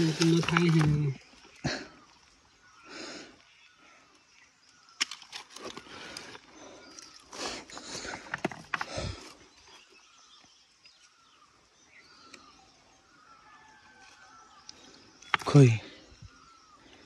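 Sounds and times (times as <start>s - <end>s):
leaves rustling: 0.0s - 1.6s
stones knocking and scraping: 0.0s - 1.6s, 5.0s - 9.9s, 15.2s - 15.8s.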